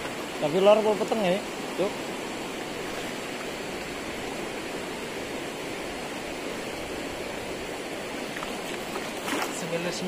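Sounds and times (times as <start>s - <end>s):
river water rushing over rocks: 0.0s - 10.0s.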